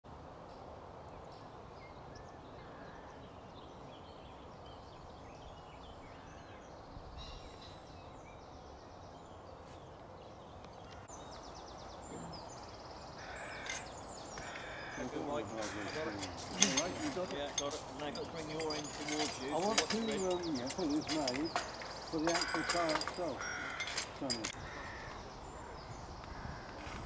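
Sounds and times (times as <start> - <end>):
small birds chirping: 0.4 - 27.0
bird trills: 10.8 - 27.0.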